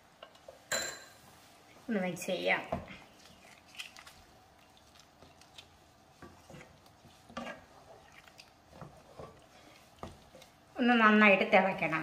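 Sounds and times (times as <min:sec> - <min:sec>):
liquid sloshing: 0:02.9 - 0:10.6
wooden spatula scraping pan: 0:06.1 - 0:10.6.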